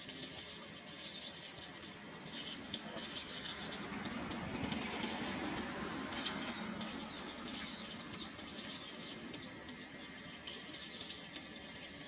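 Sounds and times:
water splashing on concrete: 0:00.0 - 0:12.0.

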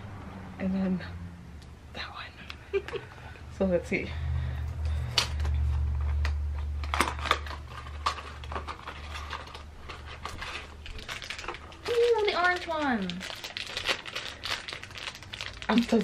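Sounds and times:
low hum: 0:00.0 - 0:11.6
paper and foil packaging crinkling: 0:04.9 - 0:16.0.

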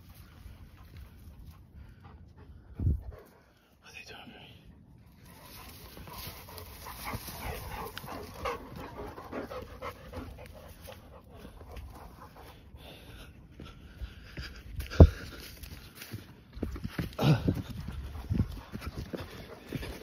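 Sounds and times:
dog panting: 0:00.2 - 0:03.8, 0:05.0 - 0:15.2, 0:17.8 - 0:20.0.

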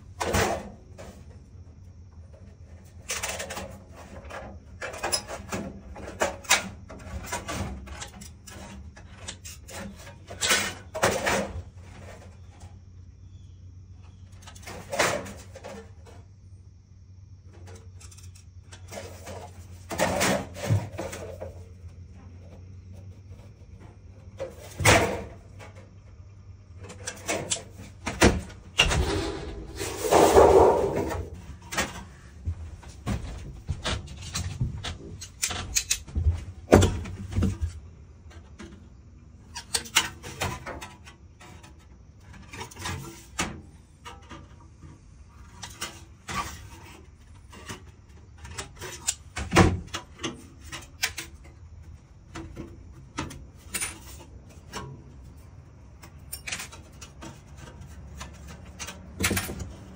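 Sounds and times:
sheet metal rattling: 0:28.8 - 0:31.6.

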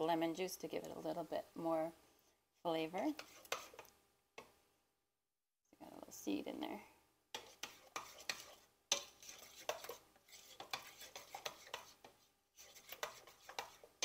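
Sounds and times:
spoon scraping wet ricotta: 0:02.9 - 0:04.5, 0:07.3 - 0:14.0.

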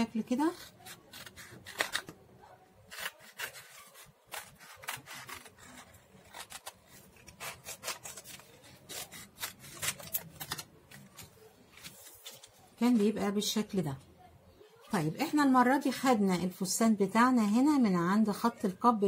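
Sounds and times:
scissors snipping paper: 0:00.4 - 0:02.2, 0:02.9 - 0:12.6.

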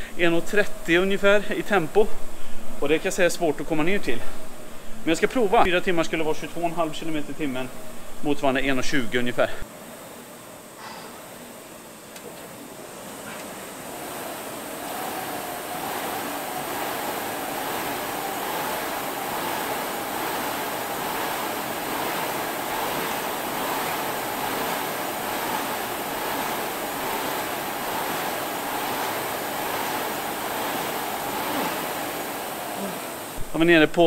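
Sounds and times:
fan flywheel whooshing: 0:12.2 - 0:34.0.

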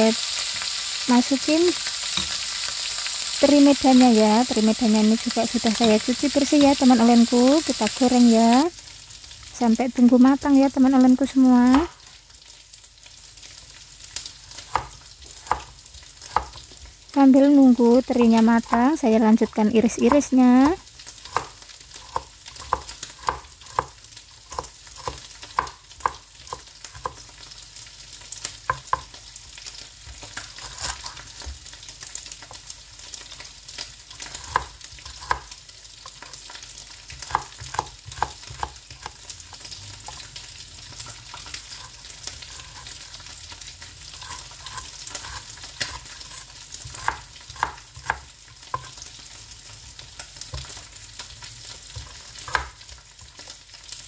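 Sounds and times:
fish sizzling in oil: 0:00.0 - 0:54.0
knife chopping on cutting board: 0:14.6 - 0:16.6, 0:20.0 - 0:27.2, 0:28.7 - 0:29.1, 0:30.4 - 0:31.5, 0:34.2 - 0:36.4, 0:37.1 - 0:39.2, 0:40.0 - 0:40.3, 0:41.0 - 0:43.0, 0:44.2 - 0:49.0, 0:51.9 - 0:52.8.

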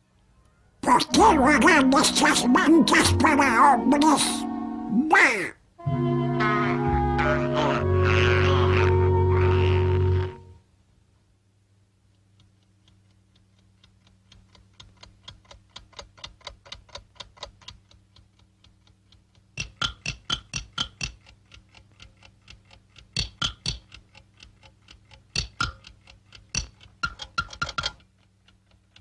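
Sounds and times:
cartoon clock ticking: 0:00.8 - 0:05.6, 0:12.0 - 0:29.0.

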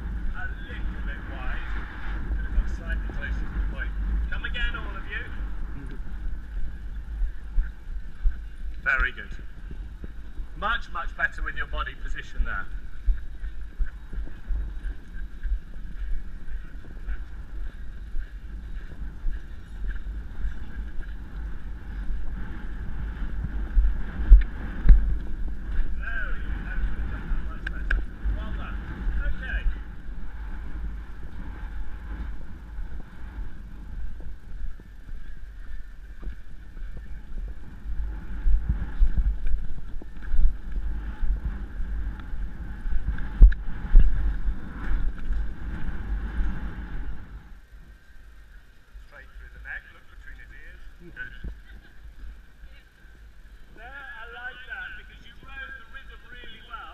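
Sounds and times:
muffled hoofbeats on grass: 0:00.0 - 0:47.5
wind buffeting microphone: 0:00.0 - 0:56.9
heavy hoof thumps: 0:12.5 - 0:47.3.

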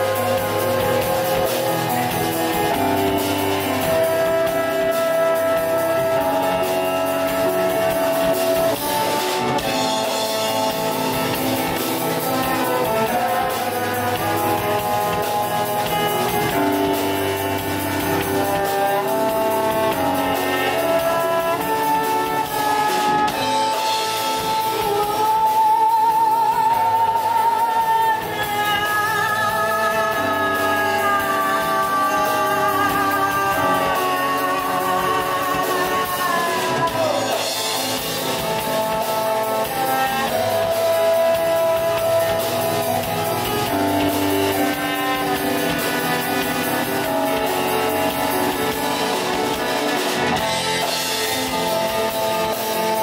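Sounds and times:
keyboard playing: 0:00.0 - 0:53.0
woman singing with vibrato: 0:24.4 - 0:37.8.

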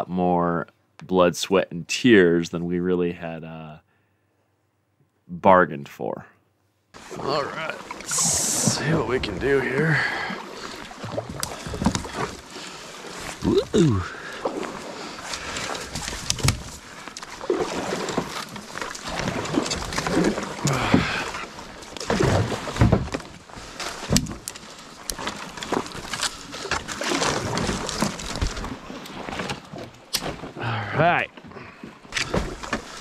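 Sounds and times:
paddle swishing and splashing: 0:07.0 - 0:33.0
grunts of effort: 0:07.1 - 0:09.1, 0:13.4 - 0:14.3, 0:20.6 - 0:21.4, 0:30.6 - 0:31.7
branches cracking and scraping: 0:10.5 - 0:30.6, 0:32.1 - 0:33.0.

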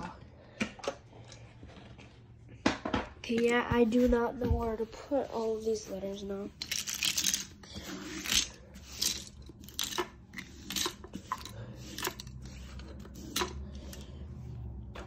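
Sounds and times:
plastic toys clicking and tapping: 0:06.6 - 0:12.4.

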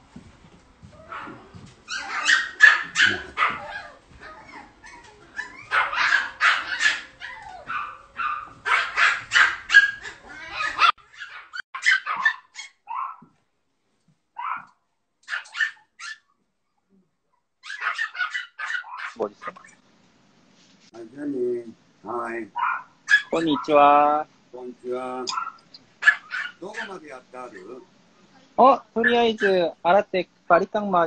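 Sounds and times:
puppy barking: 0:01.0 - 0:13.3, 0:14.4 - 0:16.3, 0:17.6 - 0:19.5, 0:22.6 - 0:23.8, 0:25.3 - 0:27.7, 0:29.0 - 0:29.6.

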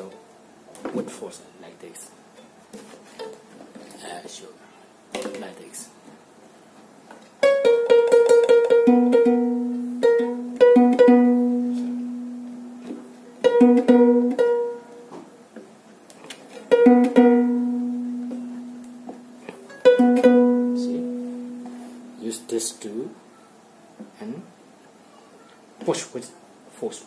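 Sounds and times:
harp strings plucked: 0:16.7 - 0:22.5.

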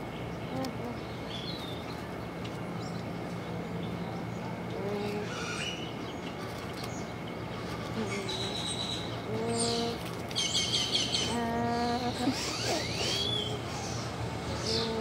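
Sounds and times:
steady low hum: 0:00.0 - 0:15.0
bird calls: 0:03.8 - 0:15.0.

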